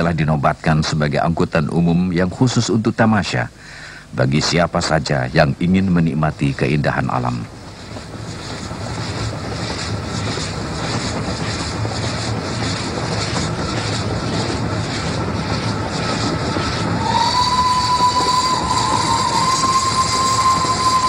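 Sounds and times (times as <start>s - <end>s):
steam locomotive running: 0.0s - 21.0s
steam whistle: 16.6s - 21.0s.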